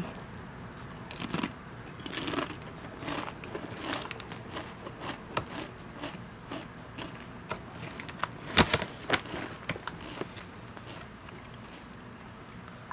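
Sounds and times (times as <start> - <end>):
potato chips crunching: 1.1 - 11.7
foil snack bag crinkling: 7.8 - 11.0.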